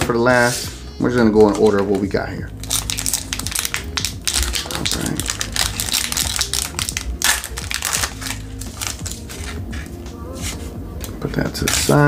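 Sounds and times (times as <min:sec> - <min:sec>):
foil wrapper crinkling: 0:01.4 - 0:09.6.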